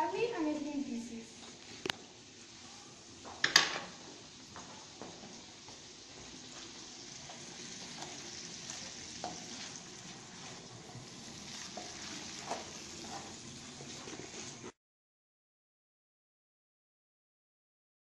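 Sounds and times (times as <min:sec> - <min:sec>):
bacon sizzling in a frying pan: 0:00.0 - 0:14.8
wooden spatula scraping: 0:06.2 - 0:14.8.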